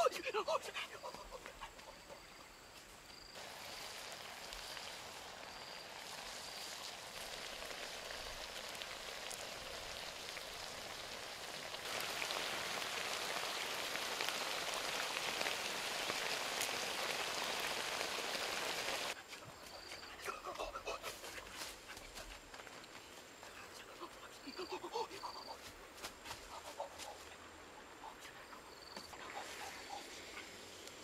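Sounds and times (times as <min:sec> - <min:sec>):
food sizzling in hot sauce: 0:03.4 - 0:19.2.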